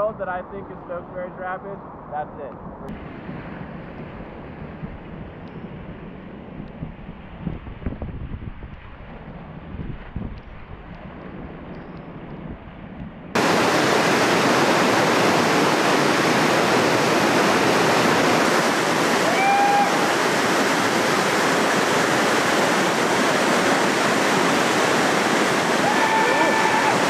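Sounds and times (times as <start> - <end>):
whitewater rapid rushing: 13.4 - 27.0.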